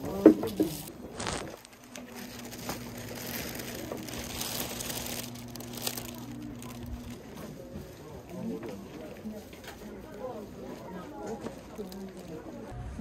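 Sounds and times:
plastic bag crinkling: 0.0 - 8.0, 9.7 - 12.7
steady low hum: 0.0 - 10.8
paper cards rustling: 0.3 - 7.6.

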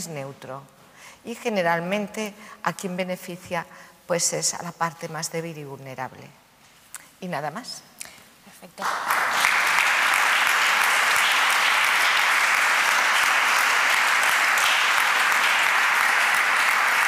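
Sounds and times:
audience applauding: 8.8 - 17.0.

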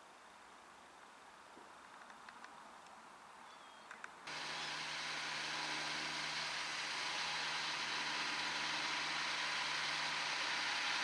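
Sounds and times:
hissing noise: 4.3 - 11.0
tractor diesel engine under load: 4.3 - 11.0.

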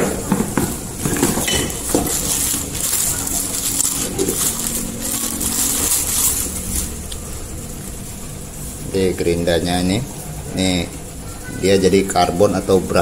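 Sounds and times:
plastic bag crinkling: 0.2 - 9.2.

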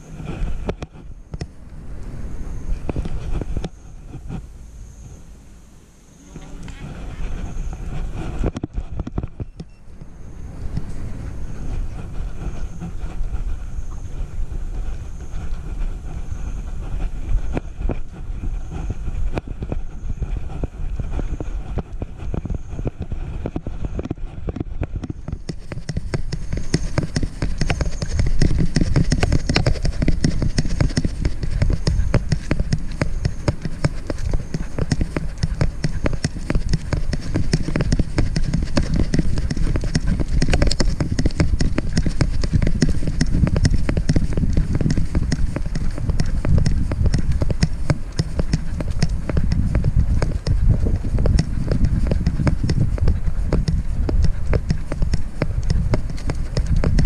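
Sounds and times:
wind on microphone: 0.0 - 57.0
camera mount rubbing and knocking: 6.3 - 10.1, 17.4 - 57.0.

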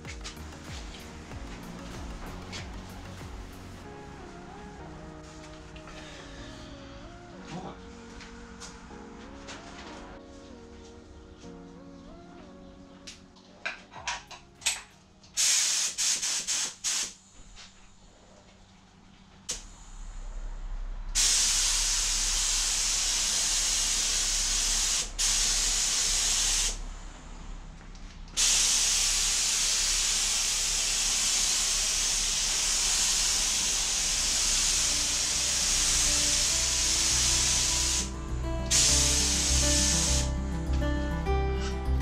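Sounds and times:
paint spray gun hissing: 15.4 - 17.2, 21.2 - 26.8, 28.4 - 40.3.

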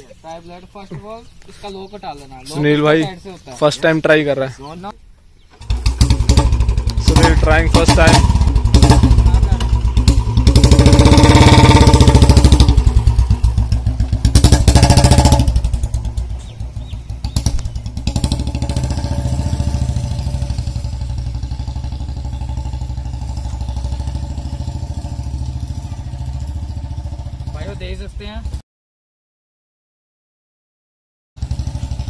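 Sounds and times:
motorcycle engine running: 5.5 - 28.6, 31.4 - 32.0.

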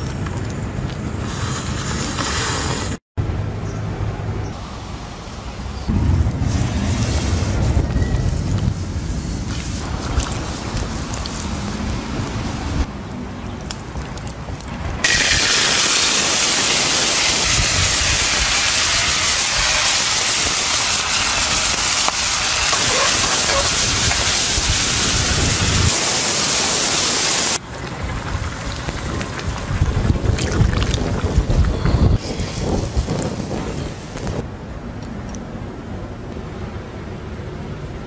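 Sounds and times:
spices sizzling in hot oil: 15.0 - 34.4.

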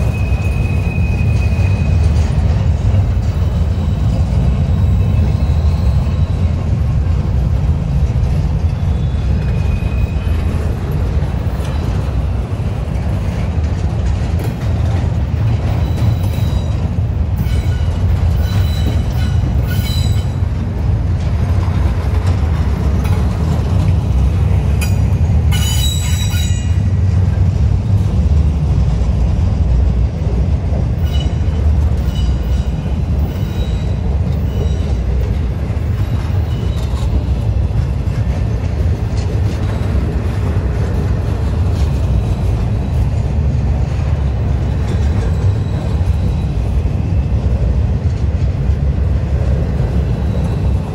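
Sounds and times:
high-pitched wheel squeals: 0.0 - 2.4, 3.4 - 6.5, 8.7 - 10.6, 15.7 - 20.4, 25.5 - 26.8, 31.0 - 35.1
freight train wheels rumbling on rail: 0.0 - 50.9.

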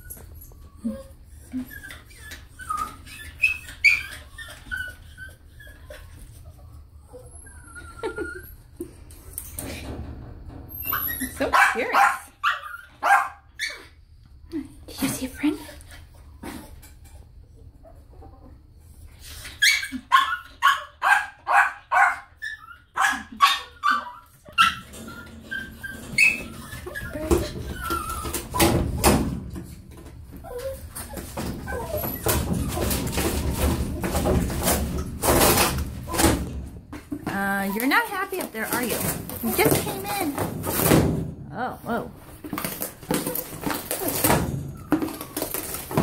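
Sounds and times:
dog whining and yelping: 0.0 - 9.1, 10.7 - 14.0, 15.1 - 29.3, 30.2 - 36.5, 42.6 - 46.0
dog barking: 11.5 - 13.4, 20.1 - 22.3, 23.0 - 24.0.

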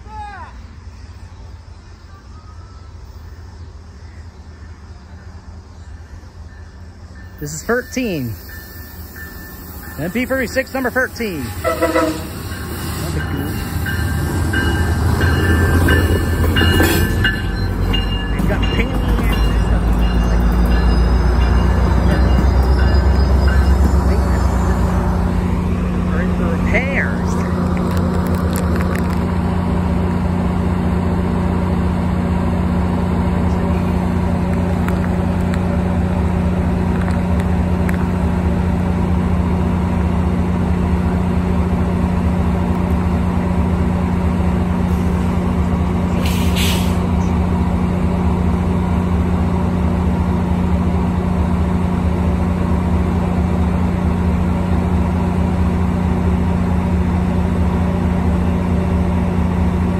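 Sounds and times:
diesel locomotive engine drone: 0.0 - 59.9
train coaches rumbling on rails: 0.0 - 59.9
brief hiss: 46.2 - 47.1.

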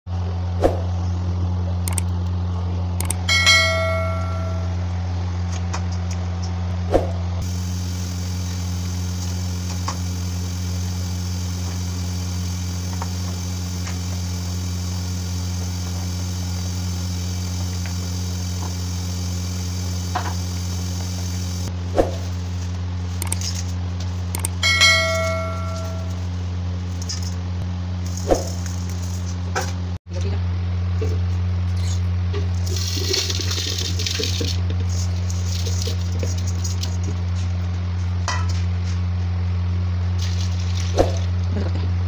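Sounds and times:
low electrical hum: 0.1 - 42.0
bell-like chime: 3.3 - 4.9, 24.6 - 26.2.

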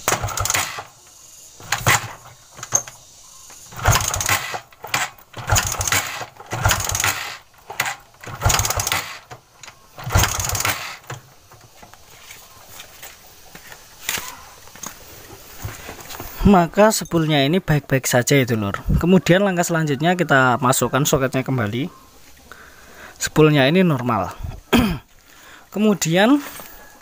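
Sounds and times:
motorcycle kick-start turning over: 0.0 - 12.1.

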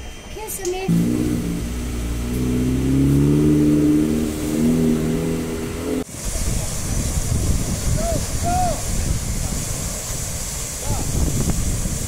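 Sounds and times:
vehicle engine revving: 0.9 - 6.1
steady rushing hiss: 0.9 - 12.0.

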